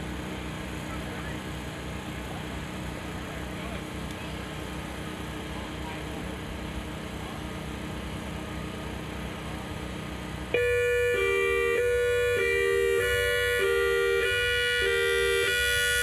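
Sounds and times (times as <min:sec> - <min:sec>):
electronic siren hi-lo signal: 0:10.5 - 0:16.0.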